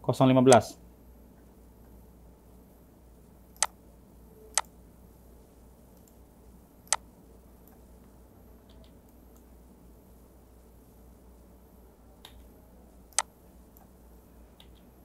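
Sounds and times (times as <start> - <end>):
faint steady hiss: 0.0 - 15.0
computer mouse clicks: 3.6 - 3.8, 4.5 - 4.7, 6.0 - 6.2, 14.6 - 14.9.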